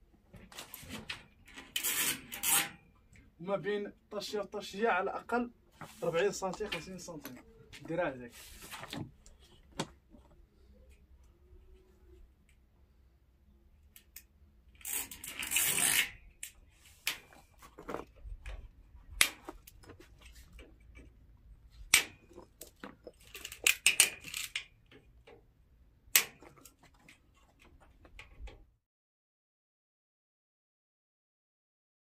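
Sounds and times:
scraping and rustling: 5.7 - 10.5, 16.7 - 24.6.

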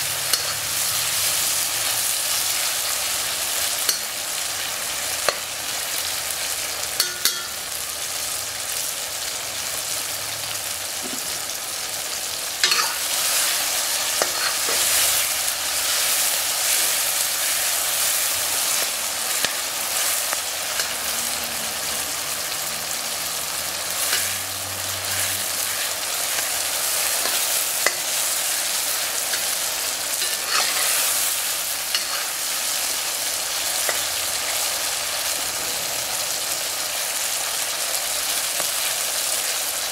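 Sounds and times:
food sizzling in oil in a wok: 0.0 - 39.9
metal spoon scraping a pan: 0.2 - 1.3, 7.0 - 7.6, 12.6 - 22.6, 23.8 - 35.4.

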